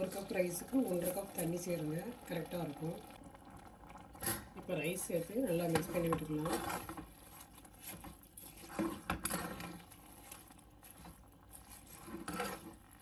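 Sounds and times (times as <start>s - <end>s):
spoon scraping wet rice: 5.8s - 13.0s.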